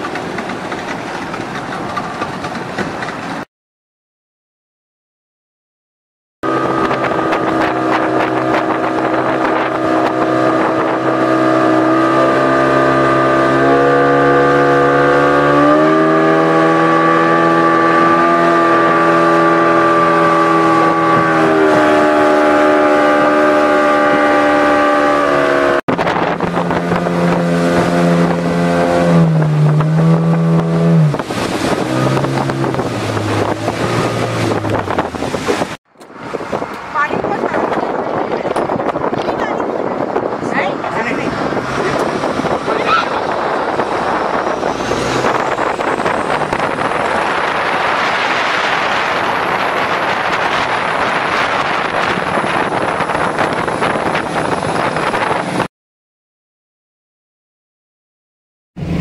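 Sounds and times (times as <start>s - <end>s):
watercraft engine revving: 0.0s - 3.5s, 6.4s - 55.7s.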